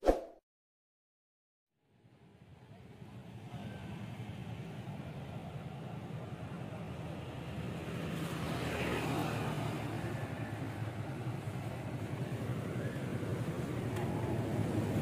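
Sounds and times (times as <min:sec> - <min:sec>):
low traffic rumble: 0:02.0 - 0:15.0
motorbike engines running: 0:03.4 - 0:15.0
motorbike riding past: 0:08.0 - 0:10.6.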